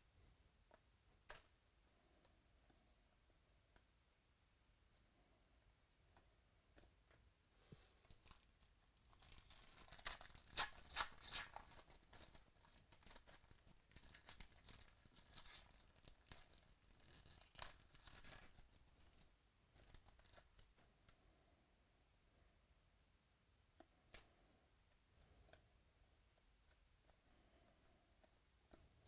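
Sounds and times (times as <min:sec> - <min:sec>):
foil wrapper tearing and crinkling: 0:09.1 - 0:18.6.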